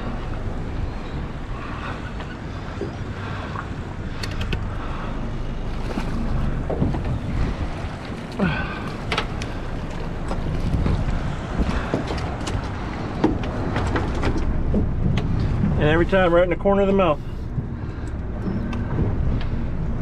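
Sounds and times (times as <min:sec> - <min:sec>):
water moving around boat: 0:00.0 - 0:20.0
wind on microphone: 0:06.0 - 0:16.3.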